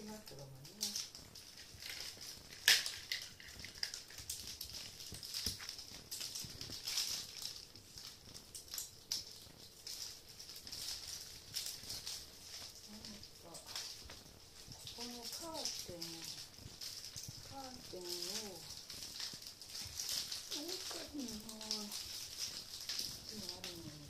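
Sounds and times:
kittens scratching and pouncing on cloth: 0.0s - 24.0s.

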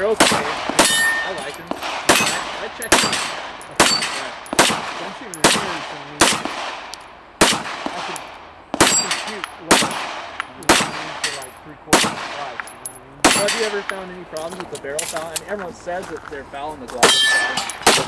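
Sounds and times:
steel targets ringing: 0.0s - 6.4s, 7.9s - 14.6s, 17.0s - 18.0s
pistol shots with echo: 0.0s - 14.5s, 17.0s - 18.0s.

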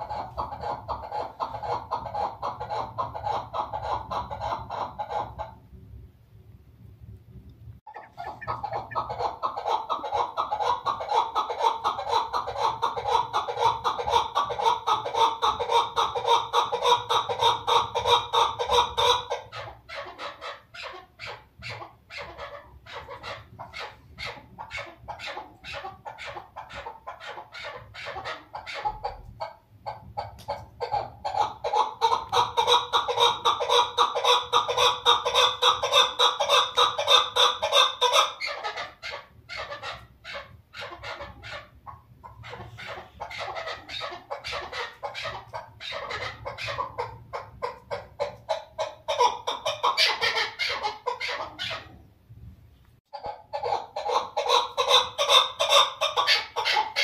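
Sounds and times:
partridge clucking calls: 7.9s - 51.9s.

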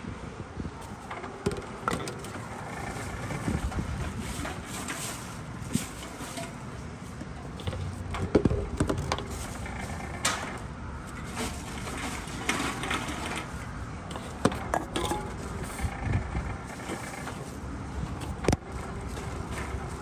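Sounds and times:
low conveyor hum: 0.0s - 20.0s
containers knocking and clattering: 7.4s - 10.6s, 14.1s - 15.9s.

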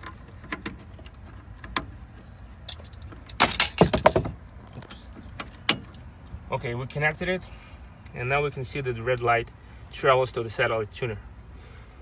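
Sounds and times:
wiring rattling and rustling: 0.0s - 6.1s.

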